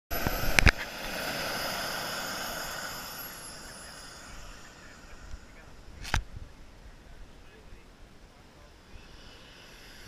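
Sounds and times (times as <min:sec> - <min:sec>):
exhaust rush: 0:00.1 - 0:10.0
jet turbine whine: 0:00.1 - 0:10.0
wind buffets on microphone: 0:04.2 - 0:07.2.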